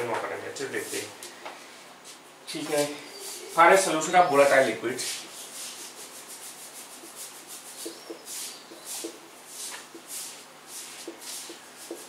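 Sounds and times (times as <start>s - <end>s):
marker scratching on whiteboard: 3.2s - 12.0s.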